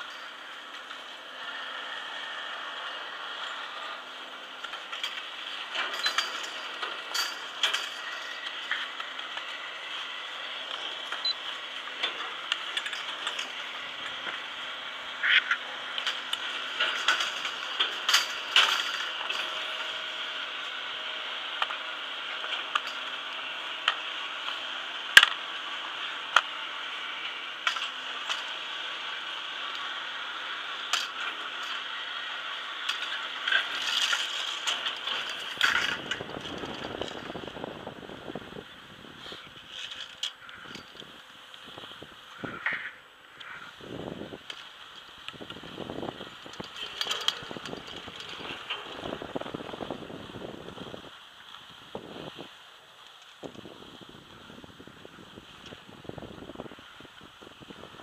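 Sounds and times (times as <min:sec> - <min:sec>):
ski lift machinery hum: 0:00.0 - 0:58.0
sharp clicks and clatters: 0:27.2 - 0:28.6, 0:32.8 - 0:37.9, 0:44.4 - 0:50.0.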